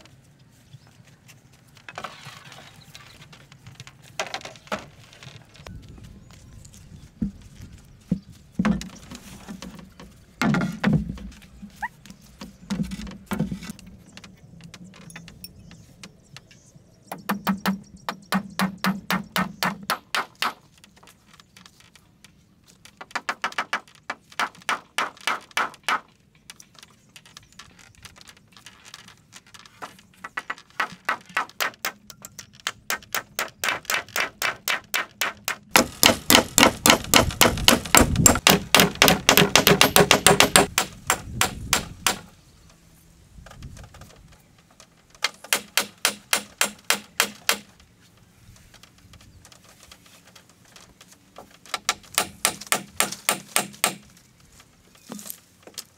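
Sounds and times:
hand tool striking bamboo: 17.1 - 20.8, 30.3 - 42.3, 45.2 - 47.8, 51.4 - 54.2.

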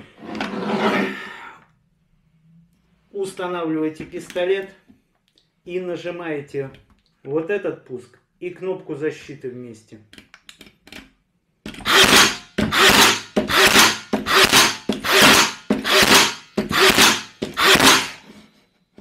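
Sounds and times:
nail gun firing into wood: 11.8 - 18.2.

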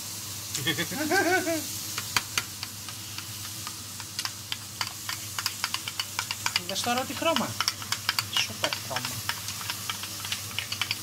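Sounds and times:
burger patty sizzling: 0.0 - 11.0
spoon clicking on glass bowl: 4.2 - 11.0.

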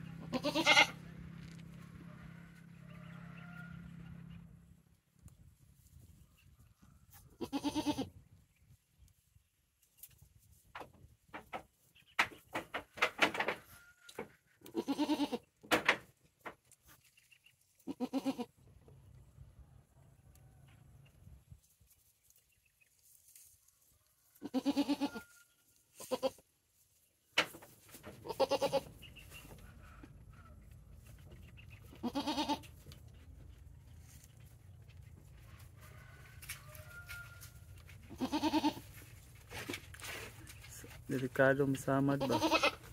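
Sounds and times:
goats bleating: 0.2 - 1.0, 7.4 - 8.1, 14.6 - 15.5, 17.9 - 18.5, 24.4 - 25.2, 26.0 - 26.4, 28.2 - 28.9, 31.9 - 32.7, 38.1 - 38.9, 42.1 - 42.9.

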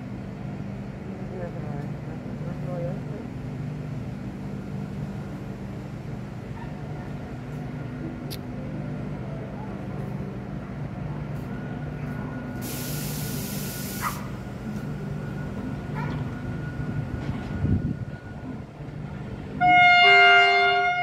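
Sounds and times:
diesel locomotive engines humming: 0.0 - 21.0
sharp hiss burst: 12.6 - 14.3.

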